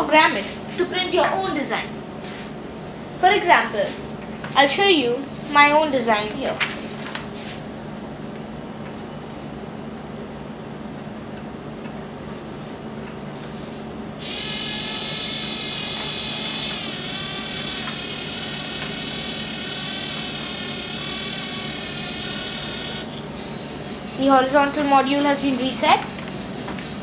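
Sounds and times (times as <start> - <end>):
servo motor whining: 14.2 - 24.0.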